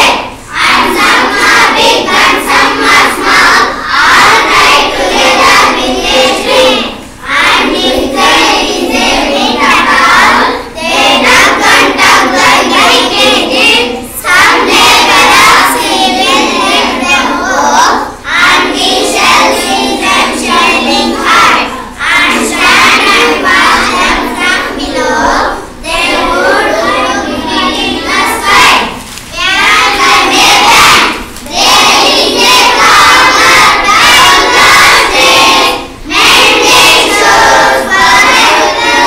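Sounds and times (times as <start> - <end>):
children reading aloud in chorus: 0.0 - 39.0.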